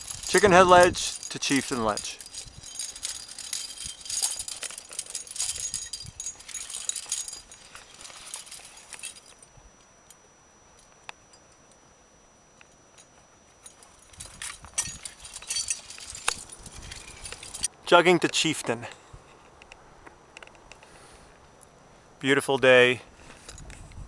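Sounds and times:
climbing gear jangling and clinking: 0.0s - 11.0s, 12.9s - 17.7s.

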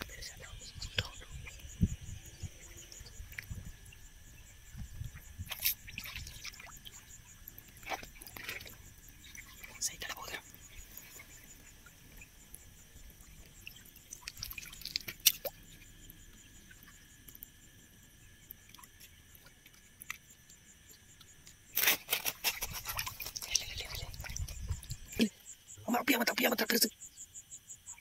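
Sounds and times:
crickets trilling: 0.0s - 28.0s
rustling and splashing in water: 2.4s - 15.9s, 21.6s - 25.3s.

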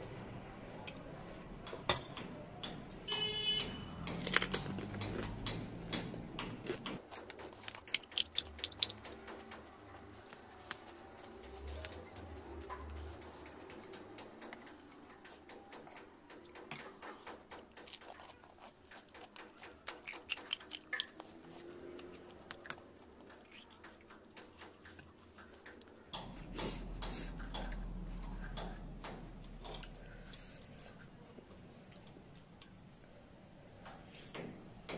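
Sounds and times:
close chewing: 6.6s - 15.8s, 16.4s - 31.2s.

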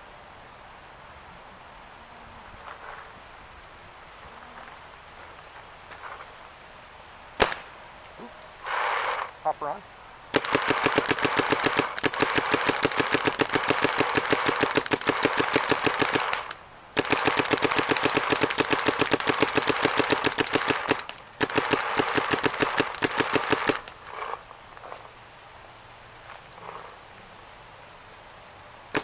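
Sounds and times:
paintball gun rapid firing: 7.4s - 7.7s, 10.3s - 24.3s.

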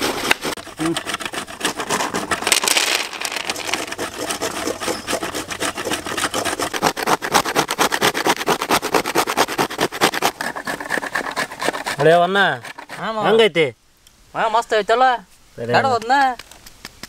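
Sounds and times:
coconut grated on metal grater: 0.0s - 13.4s.

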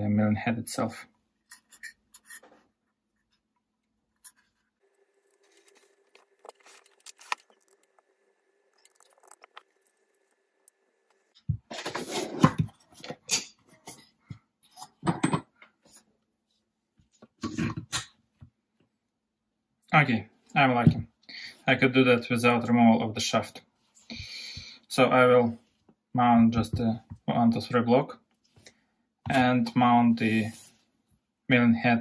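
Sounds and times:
metal parts clattering and scraping: 11.7s - 14.1s.

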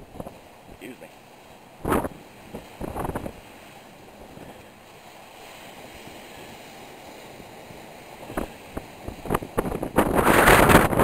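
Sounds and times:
wind on microphone: 0.0s - 0.8s, 1.8s - 4.7s, 5.6s - 11.0s
surf breaking on rocky shore: 0.0s - 11.0s.

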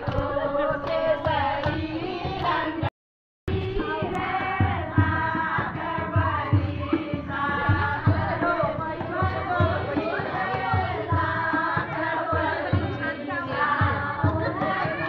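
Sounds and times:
dholak drum beats: 0.0s - 2.9s, 3.5s - 15.0s
people clapping: 0.0s - 2.9s
women singing in unison: 0.0s - 2.9s, 3.5s - 15.0s.

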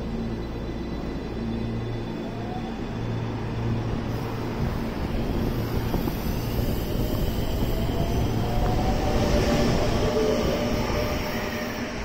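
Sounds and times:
electric train hum: 0.0s - 12.0s.

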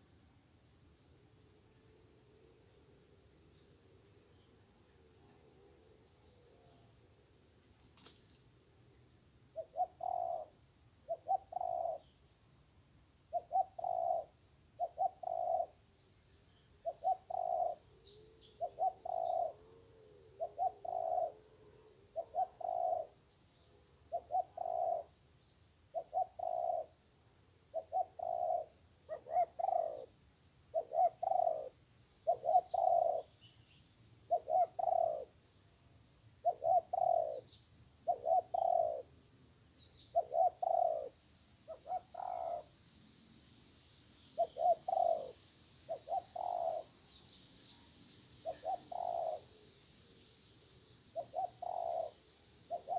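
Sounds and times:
faint small-bird chirps: 1.2s - 42.8s, 43.8s - 52.9s
doves cooing: 9.6s - 12.0s, 13.3s - 15.8s, 16.8s - 23.2s, 24.1s - 25.1s, 26.0s - 26.9s, 27.8s - 30.1s, 30.7s - 31.7s, 32.3s - 33.3s, 34.3s - 35.3s, 36.4s - 39.1s, 40.1s - 42.7s, 44.4s - 46.9s, 48.4s - 49.5s, 51.2s - 52.9s.

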